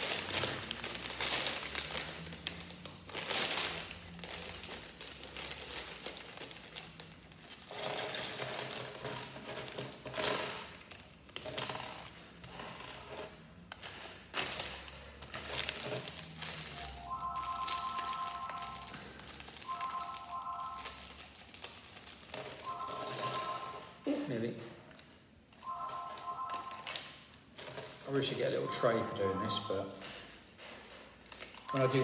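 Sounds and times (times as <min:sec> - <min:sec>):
plastic bag crinkling: 0:00.0 - 0:07.7, 0:14.6 - 0:22.9.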